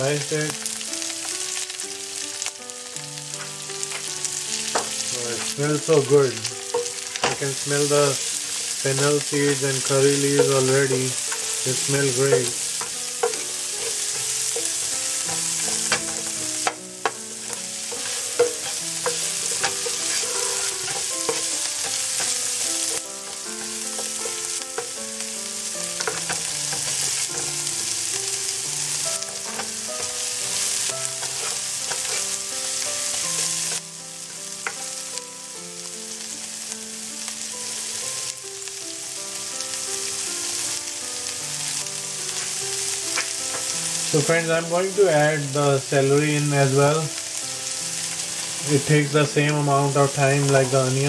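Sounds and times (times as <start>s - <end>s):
onions sizzling in oil: 0.0s - 51.0s
spoon scraping a pan: 3.3s - 25.0s, 25.8s - 27.9s, 28.9s - 33.8s, 42.3s - 44.1s.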